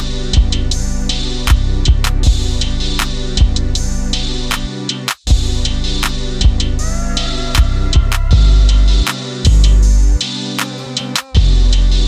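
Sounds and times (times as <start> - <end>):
sustained bass line: 0.0 - 4.3, 5.3 - 10.2.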